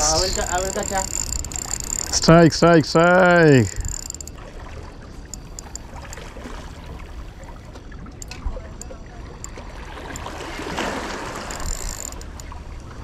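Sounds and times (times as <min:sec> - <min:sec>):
water lapping against rocks: 0:03.0 - 0:13.0
light clicks: 0:05.3 - 0:06.3.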